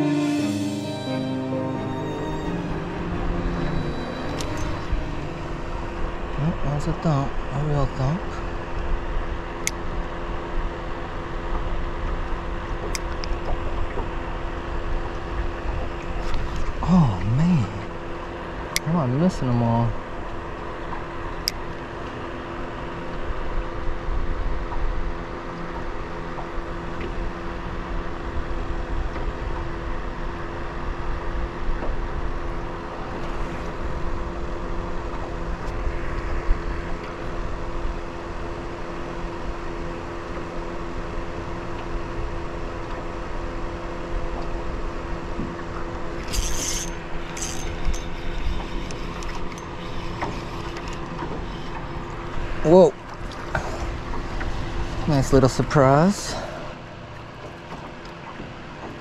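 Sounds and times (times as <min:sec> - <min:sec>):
low rumble: 0:00.0 - 0:07.7
motor hum: 0:00.0 - 0:59.0
short rattling clicks: 0:46.2 - 0:51.3.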